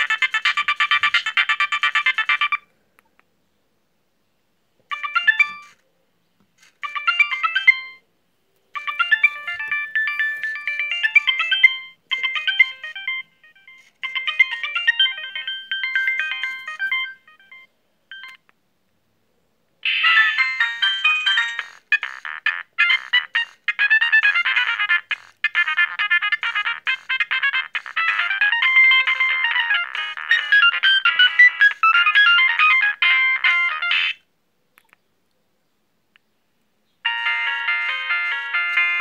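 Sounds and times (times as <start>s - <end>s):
polyphonic ringtone melodies: 0.0s - 2.6s, 4.9s - 5.8s, 6.8s - 8.0s, 8.7s - 18.4s, 19.8s - 34.2s, 37.0s - 39.0s.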